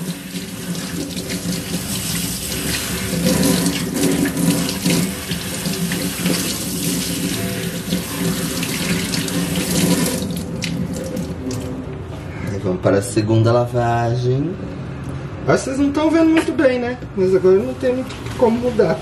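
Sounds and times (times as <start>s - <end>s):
water splashing into steel sink: 0.0s - 11.8s.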